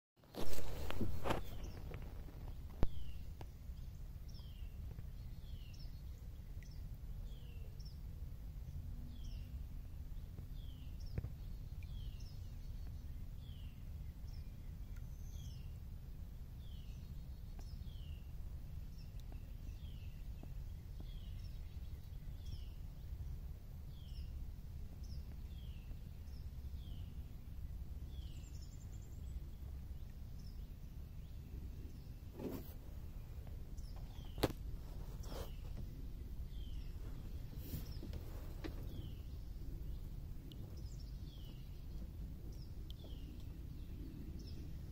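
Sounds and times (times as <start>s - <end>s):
steady low rumble: 0.3s - 44.9s
bird chirping: 0.4s - 8.0s, 28.1s - 44.9s.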